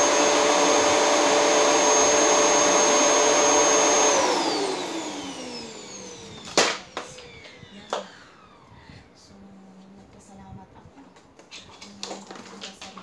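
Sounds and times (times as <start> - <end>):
vacuum cleaner running with whine: 0.0 - 9.1.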